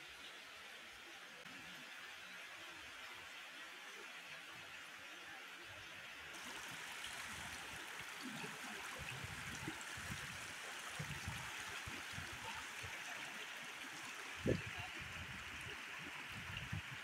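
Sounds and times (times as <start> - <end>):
stream rushing over rocks: 4.4 - 17.0.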